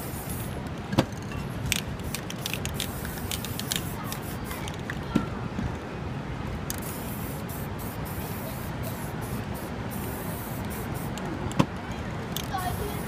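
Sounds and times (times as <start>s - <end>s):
spray paint can hissing: 0.0s - 0.5s, 1.1s - 4.8s, 6.7s - 11.3s, 12.3s - 13.0s
street noise: 0.0s - 13.0s.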